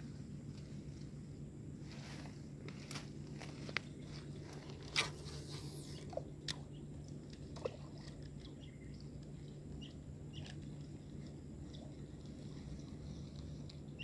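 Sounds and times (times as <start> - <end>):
faint low hum: 0.0 - 14.0
reel spool whirring: 4.0 - 6.2
birds chirping: 5.4 - 14.0.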